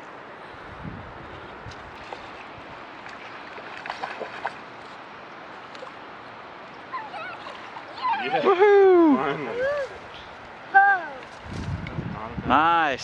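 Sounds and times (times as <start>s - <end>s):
river water rushing: 1.5s - 11.5s.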